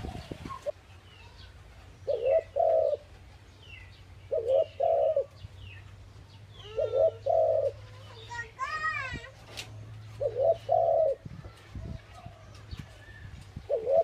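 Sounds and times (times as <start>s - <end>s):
small birds chirping: 0.0s - 14.0s
dove cooing: 2.0s - 3.2s, 4.3s - 5.4s, 6.6s - 8.2s, 10.1s - 11.3s, 13.6s - 14.0s.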